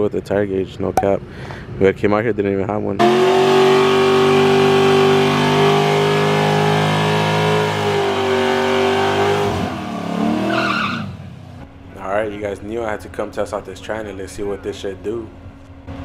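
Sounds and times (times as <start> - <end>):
tires spinning on pavement: 3.0 - 11.6
car engine at high revs: 3.0 - 11.7.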